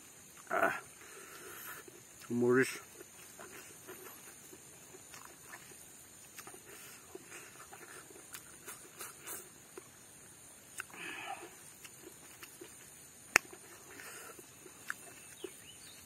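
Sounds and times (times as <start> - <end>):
low steady hiss: 0.0 - 16.0
soft chewing and mouth clicks: 0.2 - 16.0.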